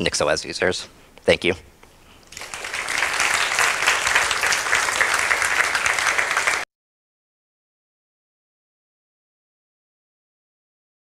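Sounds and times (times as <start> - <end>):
audience applauding: 2.3 - 6.7.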